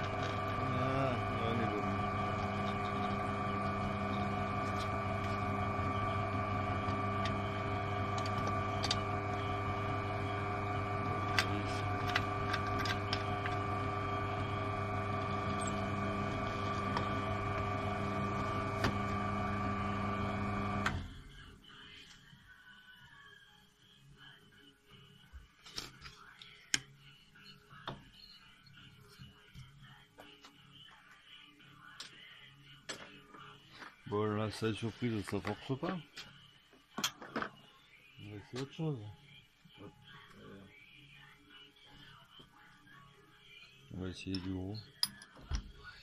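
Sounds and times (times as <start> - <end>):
drill press boring into wood: 0.0 - 21.1.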